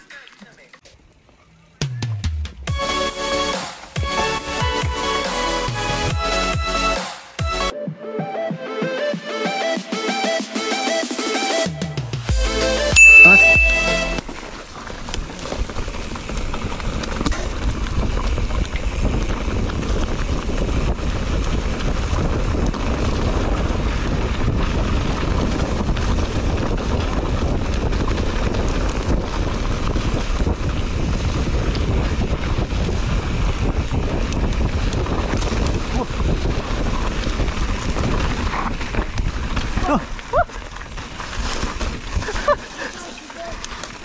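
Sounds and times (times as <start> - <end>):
bike tyres rolling on dirt trail: 0.0 - 1.8, 14.2 - 44.0
wind buffeting microphone: 15.6 - 42.7.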